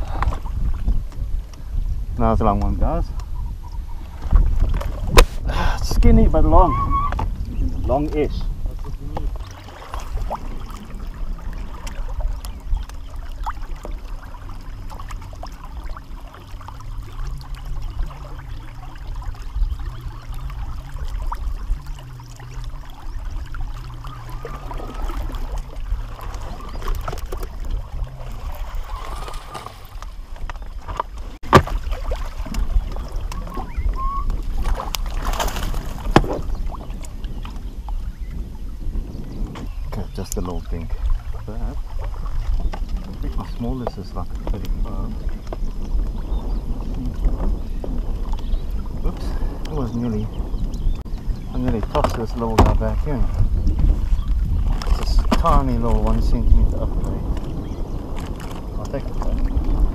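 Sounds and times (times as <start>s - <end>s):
water lapping at boat: 0.0s - 59.9s
wind rumbling on microphone: 0.0s - 59.9s
fish splashing: 9.2s - 37.2s.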